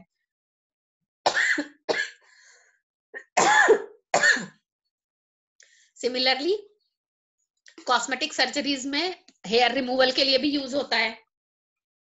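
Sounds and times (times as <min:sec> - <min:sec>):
person coughing: 0:01.3 - 0:02.2, 0:03.2 - 0:04.6.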